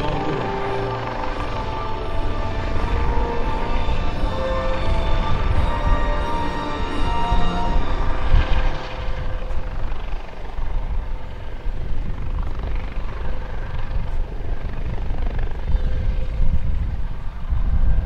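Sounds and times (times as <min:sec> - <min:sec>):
faint turbine whine: 0:00.0 - 0:18.0
helicopter rotor rumble: 0:00.0 - 0:18.0.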